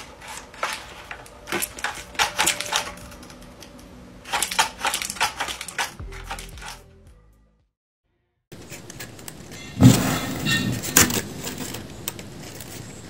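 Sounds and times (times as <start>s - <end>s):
dry papery clacks: 0.0s - 6.8s.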